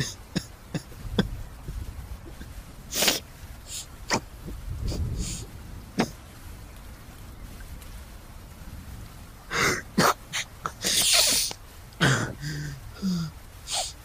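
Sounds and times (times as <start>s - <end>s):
man sobbing: 9.5s - 13.9s.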